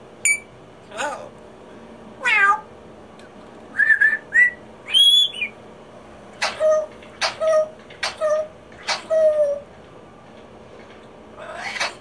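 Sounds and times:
parrot whistling: 3.7s - 5.6s.

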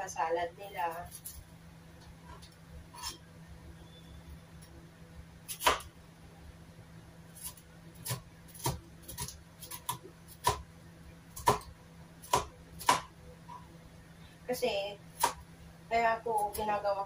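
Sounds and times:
faint low hum: 0.0s - 17.0s
knife chopping on cutting board: 5.5s - 5.9s, 7.5s - 10.6s, 11.4s - 13.1s.

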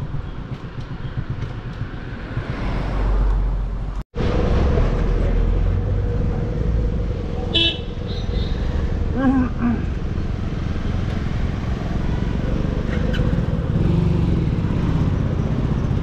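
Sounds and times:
traffic rumble from inside car: 0.1s - 10.5s
car horn toot: 7.5s - 8.6s.

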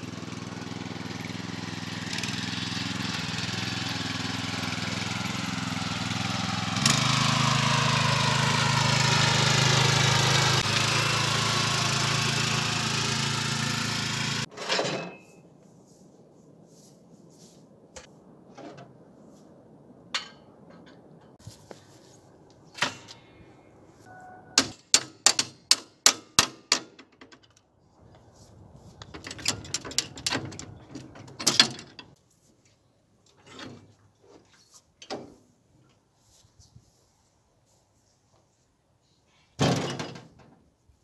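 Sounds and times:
clatter of rattling metal: 29.1s - 32.1s.

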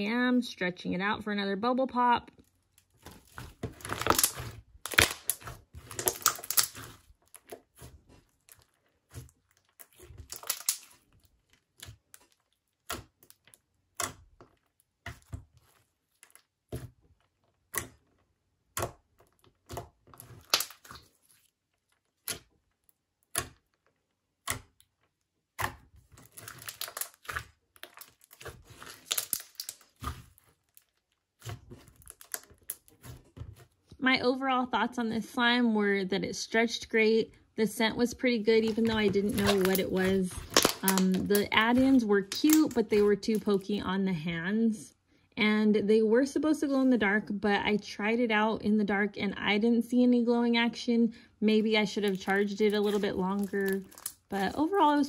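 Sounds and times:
slime bubble pops and crackling: 3.0s - 15.4s, 18.7s - 21.2s, 25.5s - 33.2s, 38.6s - 43.4s, 52.0s - 55.0s.

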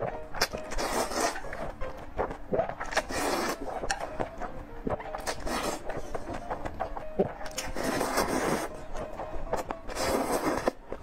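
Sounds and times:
noodles being slurped: 0.4s - 1.7s, 2.6s - 4.1s, 5.2s - 6.0s, 7.5s - 8.8s, 9.9s - 10.8s.

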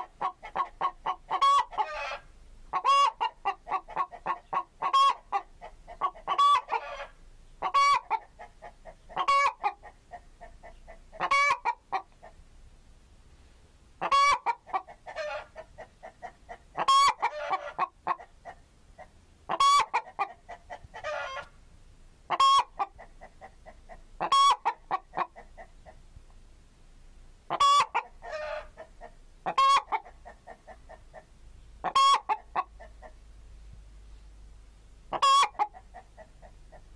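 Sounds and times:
loud sharp chicken call: 0.0s - 5.2s, 6.3s - 9.8s, 11.2s - 11.8s, 14.0s - 15.5s, 16.8s - 18.2s, 19.5s - 21.5s, 22.3s - 22.9s, 24.2s - 24.8s, 27.5s - 28.9s, 29.5s - 30.0s, 31.8s - 32.6s, 35.1s - 36.3s
chickens clucking: 0.0s - 12.4s, 14.0s - 21.6s, 22.3s - 26.3s, 27.5s - 33.3s, 35.0s - 36.9s.

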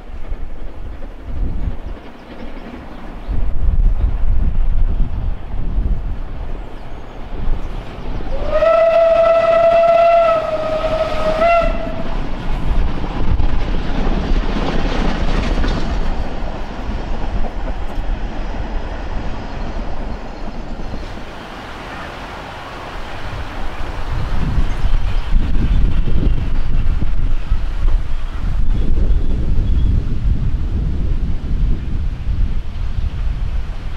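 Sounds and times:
train running on rails: 0.0s - 33.9s
steam whistle blast: 8.3s - 12.1s.

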